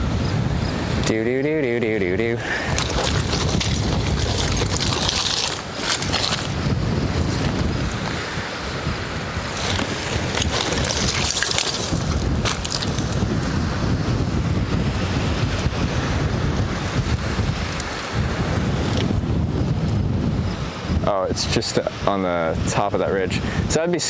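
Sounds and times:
wind buffeting microphone: 0.0 - 24.0
rustling with clicks: 2.6 - 6.6, 9.5 - 13.2.

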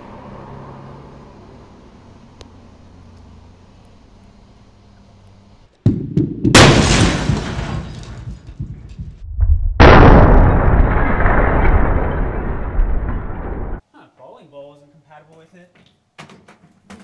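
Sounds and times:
bowling ball crashing into microwave: 5.9 - 8.7
glass shattering: 6.6 - 8.5, 9.8 - 13.8.

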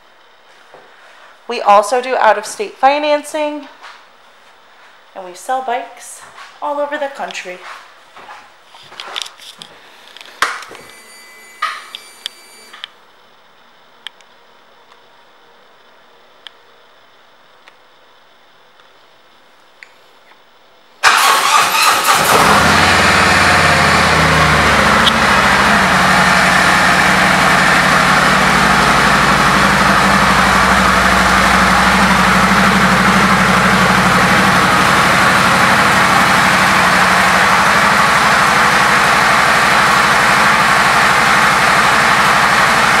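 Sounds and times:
motorcycle engine starting and idling: 21.0 - 43.0.

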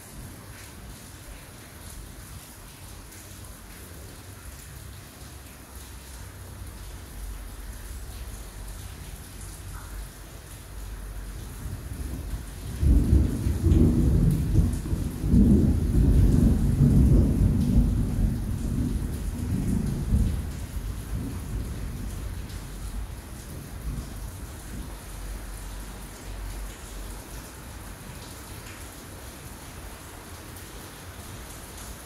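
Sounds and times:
heavy rain falling: 0.0 - 32.0
thunder rumbling: 12.0 - 24.9.

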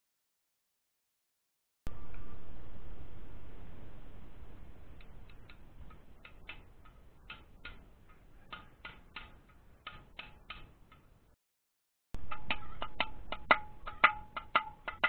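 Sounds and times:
light metal taps: 5.0 - 11.1, 12.3 - 15.0.

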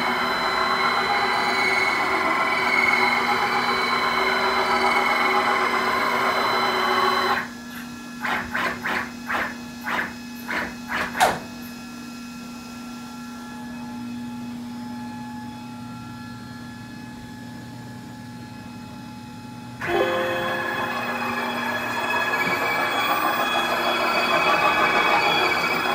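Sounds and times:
short motor whirs: 19.8 - 25.9
stepper motors whirring: 19.8 - 25.9.

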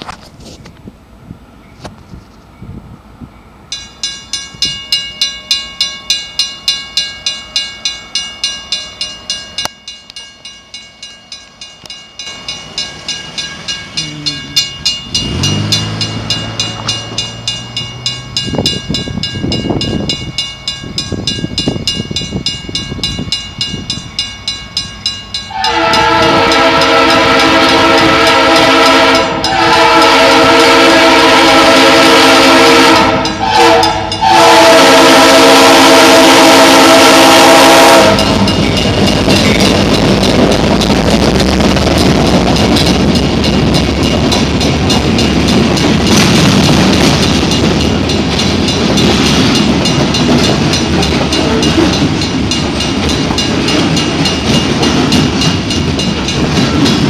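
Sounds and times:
crossing warning bell ringing: 1.4 - 57.0
locomotive air horn blasts: 25.5 - 38.6.

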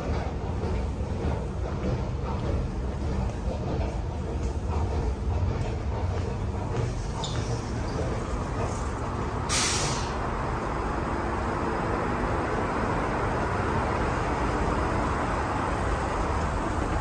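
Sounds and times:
train equipment humming: 0.0 - 17.0
short hiss: 9.5 - 10.2.

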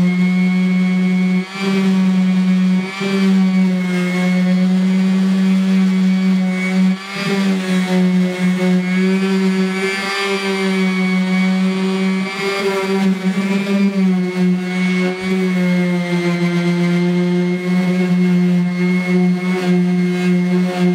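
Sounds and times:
orbital sander motor hum: 0.0 - 20.9.

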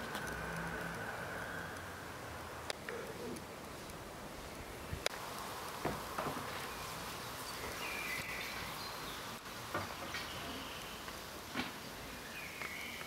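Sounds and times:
steady background hiss: 0.0 - 13.0
bird chirps: 6.6 - 11.0, 11.9 - 13.0.

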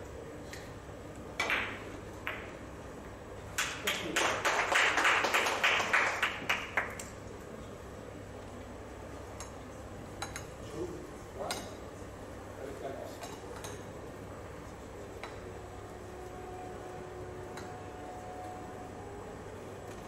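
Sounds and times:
billiard balls clicking: 1.4 - 2.6
billiard cue striking ball: 1.4 - 2.6
audience applause: 3.6 - 7.0.

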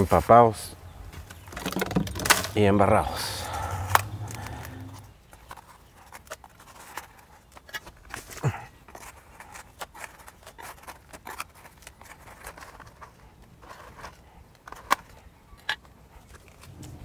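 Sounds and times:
damp soil shifting: 1.1 - 5.2, 16.5 - 17.0
roots snapping and tearing: 1.7 - 5.2.

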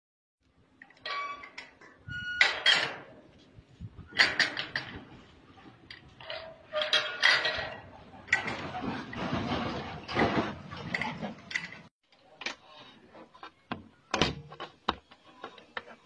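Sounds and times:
metal gate clanking: 0.8 - 3.2, 4.1 - 5.1, 6.2 - 9.2.

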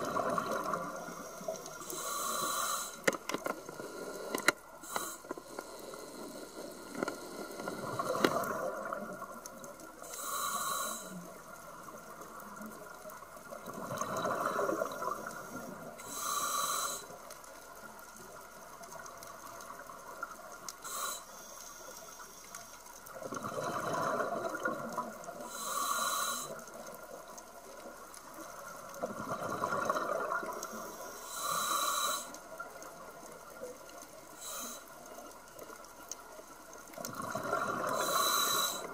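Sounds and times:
exhaled bubbles gushing: 0.0 - 1.1, 13.6 - 15.9, 23.2 - 25.4, 29.0 - 30.7, 37.0 - 38.2
diver breathing through regulator: 1.0 - 8.7, 10.0 - 11.2, 16.0 - 17.2, 20.8 - 21.9, 25.4 - 26.6, 30.7 - 32.4, 34.4 - 34.9, 37.5 - 38.9.

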